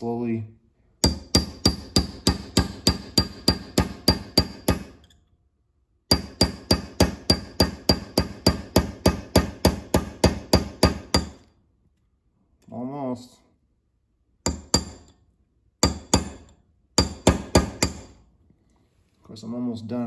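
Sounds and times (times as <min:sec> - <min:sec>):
hammer tapping metal punch: 0:01.0 - 0:05.2, 0:06.1 - 0:11.5, 0:14.4 - 0:15.2, 0:15.8 - 0:18.2.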